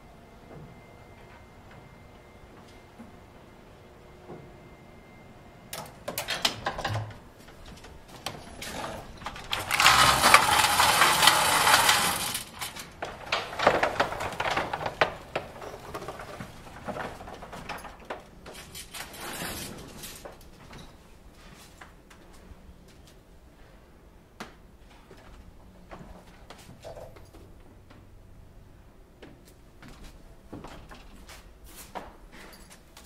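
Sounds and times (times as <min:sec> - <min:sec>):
metal scissor gate rattling: 0:08.6 - 0:14.0
metallic clanks and clatters: 0:08.6 - 0:19.2.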